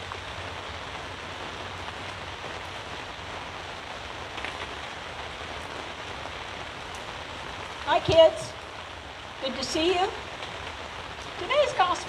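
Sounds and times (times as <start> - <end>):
rain on tent canopy: 0.0 - 12.0.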